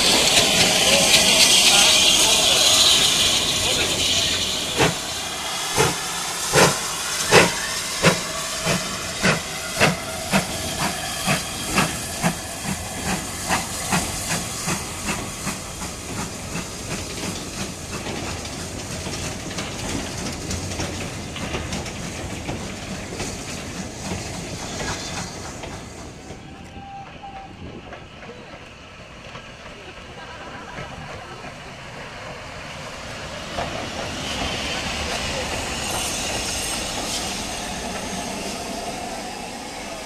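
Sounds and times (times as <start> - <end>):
wagons rumbling and clanking: 0.0 - 10.7, 16.1 - 26.5
steam hissing: 0.0 - 40.0
steam locomotive exhaust chuffs: 0.0 - 40.0.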